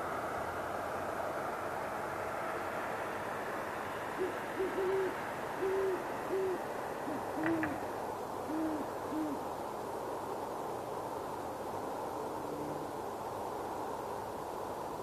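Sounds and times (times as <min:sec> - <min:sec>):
steady background hiss: 0:00.0 - 0:15.0
owls hooting: 0:04.2 - 0:07.8, 0:08.4 - 0:09.4.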